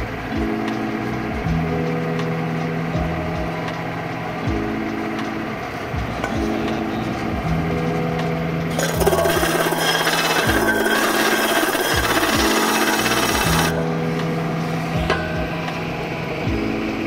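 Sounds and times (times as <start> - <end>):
electric motor humming: 8.7 - 13.8
metal grinding on sanding disc: 8.7 - 13.8.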